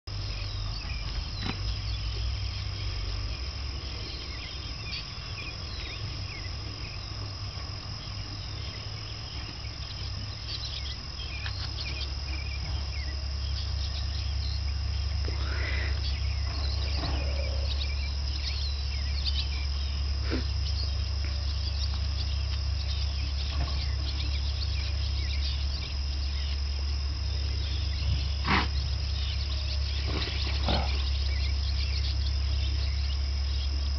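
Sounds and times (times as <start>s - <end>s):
high insect drone: 0.1s - 33.9s
steady low rumble: 0.1s - 33.9s
rising and falling bird call: 8.0s - 33.9s.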